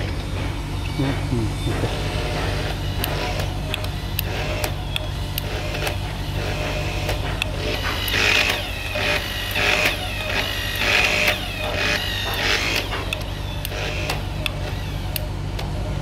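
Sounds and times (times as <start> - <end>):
hydraulic pump humming: 0.0 - 16.0
torque wrench clicking: 2.6 - 15.7.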